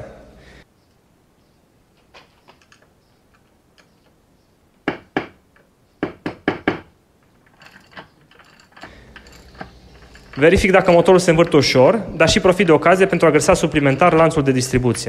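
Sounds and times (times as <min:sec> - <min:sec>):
tool clicks and rattles: 0:02.1 - 0:04.2, 0:07.2 - 0:14.8.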